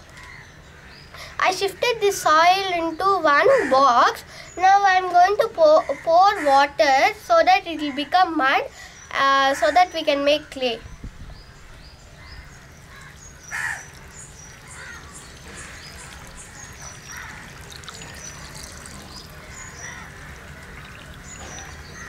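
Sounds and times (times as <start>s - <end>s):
birds calling: 0.0s - 22.0s
water trickling onto soil: 12.6s - 22.0s.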